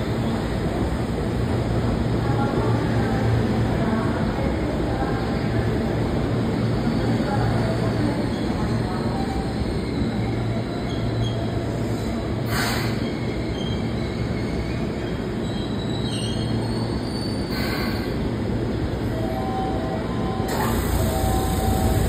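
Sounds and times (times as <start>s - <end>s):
faint brake squeals: 8.3s - 18.1s
short air hisses: 11.9s - 13.0s, 17.5s - 18.2s
train wheels rumbling: 20.5s - 22.0s.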